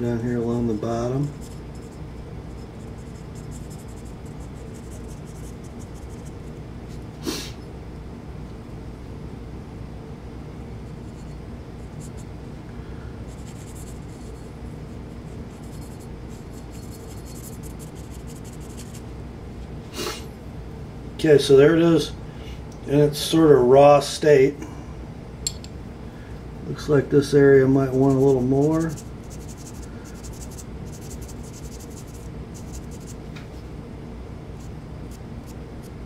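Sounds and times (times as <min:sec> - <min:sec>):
steady low hum: 0:00.0 - 0:36.0
pen scratching on metal: 0:27.9 - 0:33.2.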